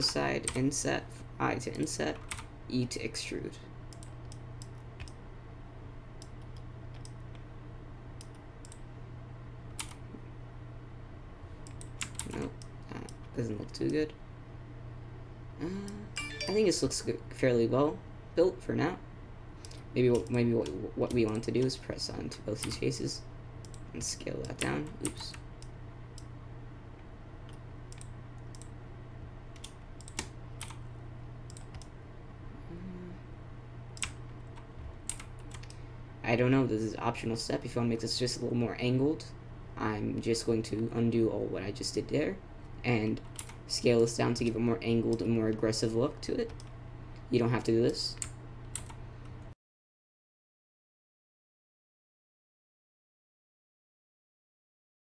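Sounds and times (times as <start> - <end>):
low steady hum: 0.0 - 49.6
keyboard and mouse clicks: 23.6 - 26.3, 29.5 - 30.8, 34.0 - 35.8.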